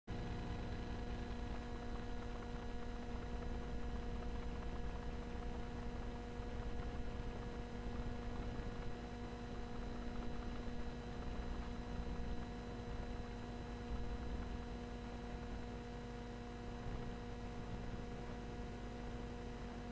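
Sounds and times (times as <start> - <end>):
electrical mains hum: 0.1 - 19.9.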